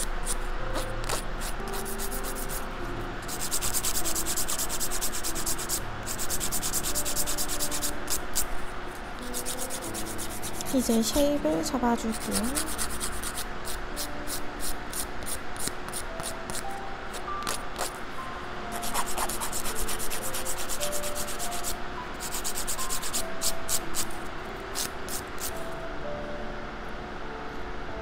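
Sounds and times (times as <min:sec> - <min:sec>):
nail file rasping on fingernail: 0:00.0 - 0:02.6, 0:03.2 - 0:08.5, 0:09.3 - 0:10.8, 0:12.1 - 0:16.6, 0:18.8 - 0:24.1.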